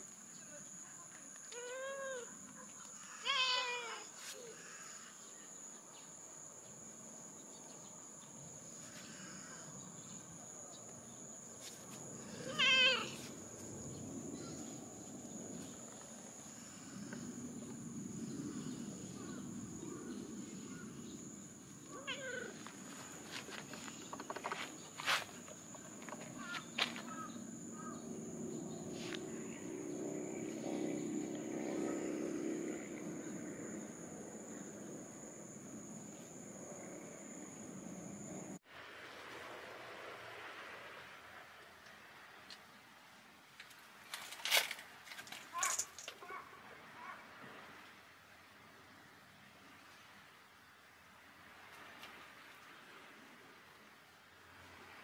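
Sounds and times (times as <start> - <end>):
cat meowing: 3.2 - 4.0, 12.4 - 13.2, 22.0 - 22.6.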